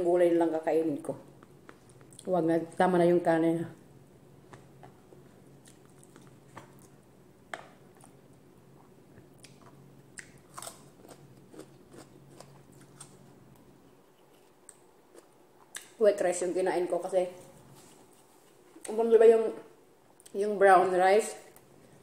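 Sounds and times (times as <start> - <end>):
chewing and mouth sounds: 4.5 - 7.0.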